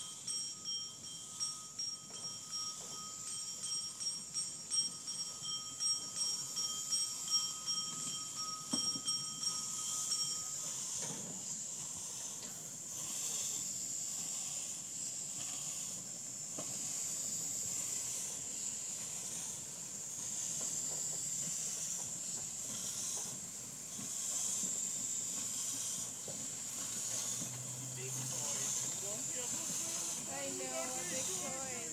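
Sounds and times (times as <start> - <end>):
bell ringing: 0.0 - 10.6
steam locomotive hissing: 0.0 - 31.9.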